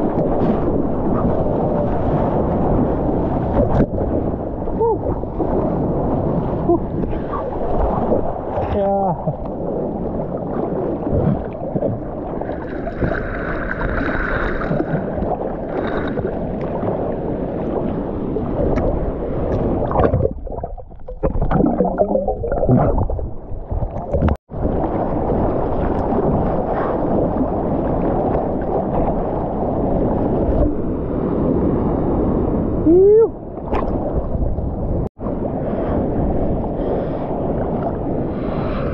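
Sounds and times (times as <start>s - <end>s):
seawater sloshing and splashing: 5.1s - 30.9s.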